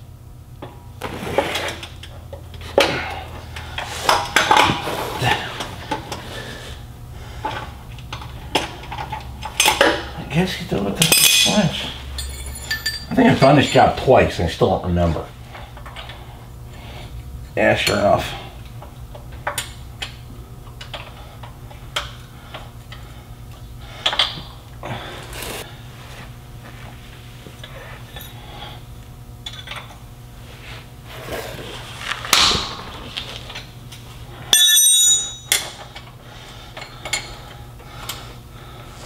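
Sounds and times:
steady low hum: 0:00.0 - 0:39.0
hand tools clinking on bolts: 0:11.0 - 0:13.9, 0:34.5 - 0:36.0
bright metallic ring: 0:34.5 - 0:35.8.

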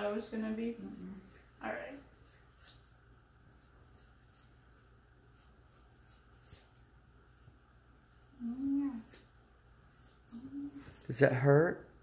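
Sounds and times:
scissors snipping hair: 0:00.6 - 0:03.0, 0:03.6 - 0:06.9, 0:08.1 - 0:09.3, 0:09.9 - 0:11.1.

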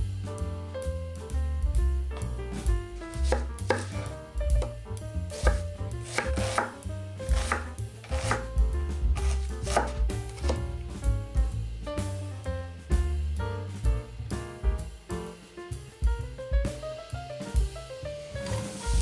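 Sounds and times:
knife chopping on wooden board: 0:03.1 - 0:04.8, 0:05.4 - 0:08.6, 0:09.2 - 0:10.7.

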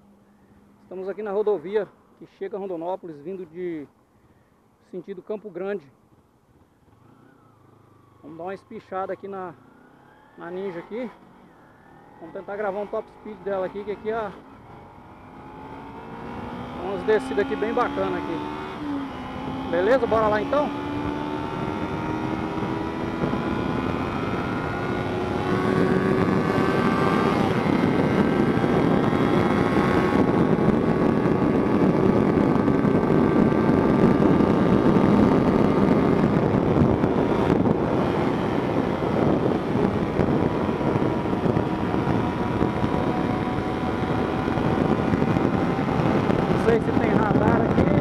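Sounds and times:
motorcycle engine at high revs: 0:06.9 - 0:48.0
wind rush: 0:15.6 - 0:48.0.

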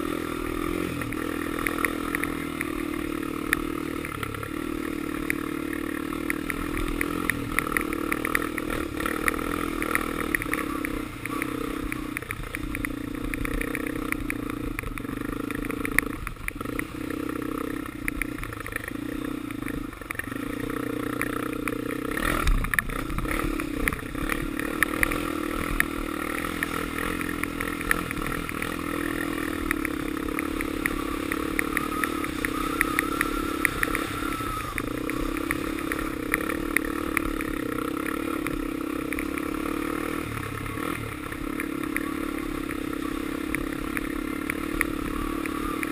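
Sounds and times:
atv engine running: 0:00.0 - 0:45.9.

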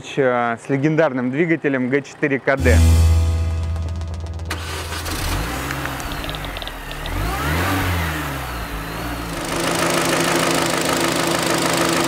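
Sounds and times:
car engine revving: 0:03.7 - 0:11.8
engine running with knock: 0:04.0 - 0:12.0.

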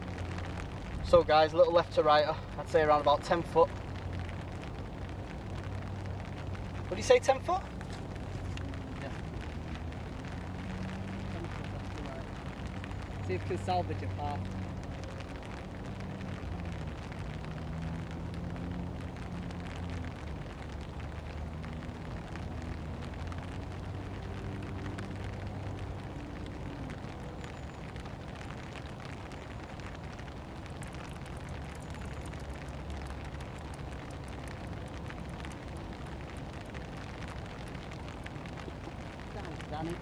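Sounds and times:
steady rain hiss: 0:00.0 - 0:40.0
sharp scattered ticks: 0:30.6 - 0:38.4.

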